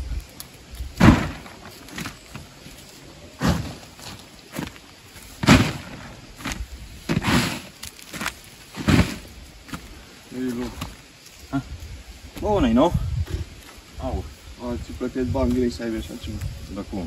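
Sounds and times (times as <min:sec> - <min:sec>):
soil flung against tarp: 0:00.8 - 0:11.0
shovel scraping into dry soil: 0:03.4 - 0:09.8.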